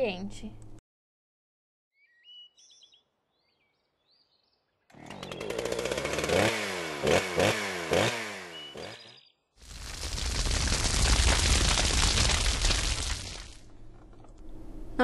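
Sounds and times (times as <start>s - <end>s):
faint bird chirps: 2.0s - 5.4s
chainsaw revving and cutting: 4.9s - 10.9s.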